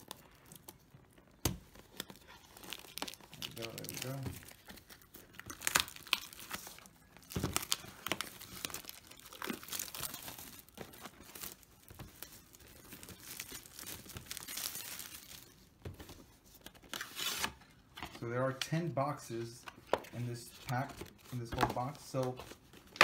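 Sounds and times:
plastic wrap tearing: 0.0s - 15.7s
plastic wrap crinkling: 0.0s - 18.9s.

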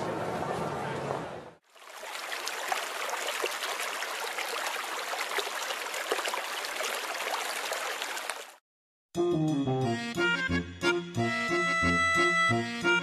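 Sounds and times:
rocky creek rushing: 1.7s - 8.5s.

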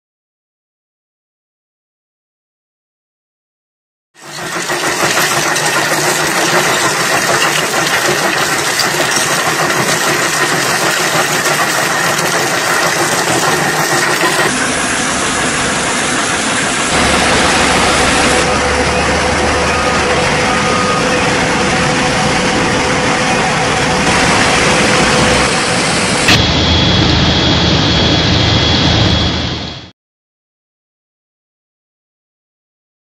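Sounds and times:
rock crusher grinding stone: 4.2s - 14.5s.

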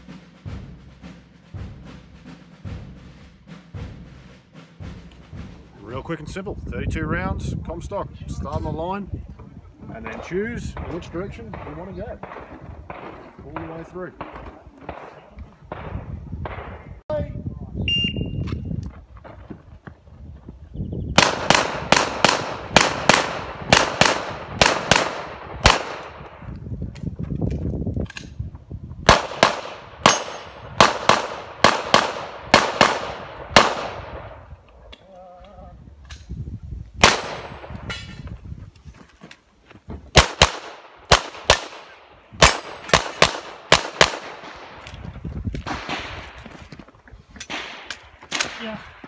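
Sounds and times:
pistol shots: 21.2s - 26.3s, 29.1s - 34.4s, 37.0s - 37.7s, 40.1s - 44.8s.

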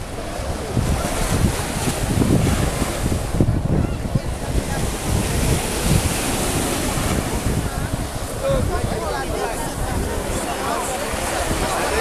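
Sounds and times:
hiss of wind and sea: 0.0s - 12.0s
wind buffeting microphone: 0.0s - 12.0s.

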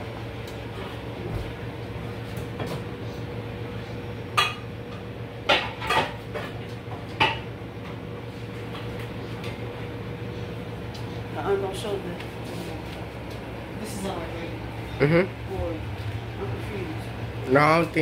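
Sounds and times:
steady low hum: 0.0s - 18.0s
pots and pans clanking: 5.4s - 7.5s.

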